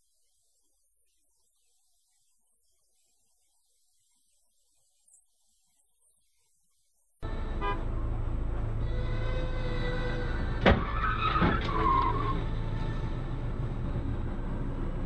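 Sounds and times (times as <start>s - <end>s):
car engine and road rumble: 7.2s - 15.0s.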